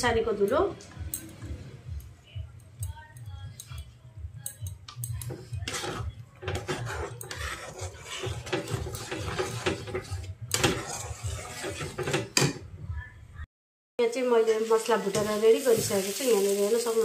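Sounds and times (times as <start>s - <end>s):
metal spatula scraping a pan: 5.2s - 12.6s
paste frying: 5.3s - 12.5s, 14.3s - 17.0s.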